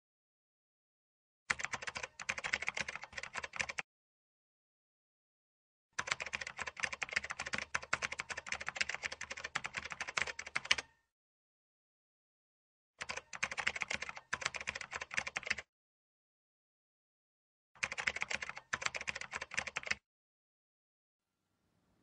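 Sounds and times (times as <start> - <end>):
keyboard typing clicks: 1.5 - 3.8, 6.0 - 11.0, 13.0 - 15.6, 17.8 - 20.0.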